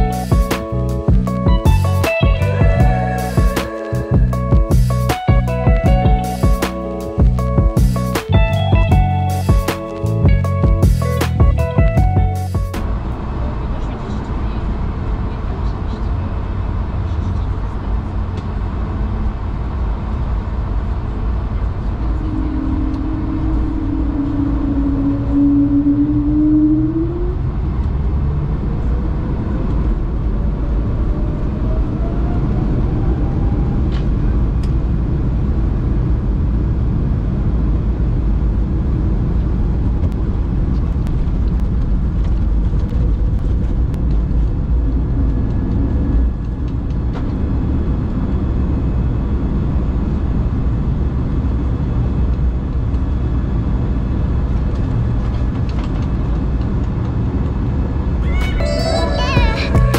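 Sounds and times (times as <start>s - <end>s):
aircraft cabin rumble: 0.0s - 32.0s, 33.4s - 59.9s
jet engine whine: 12.8s - 59.8s.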